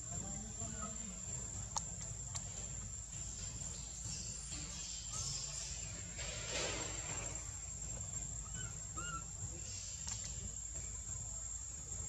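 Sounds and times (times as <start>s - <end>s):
low background rumble: 6.9s - 12.0s
high arched animal chirps: 8.4s - 10.0s.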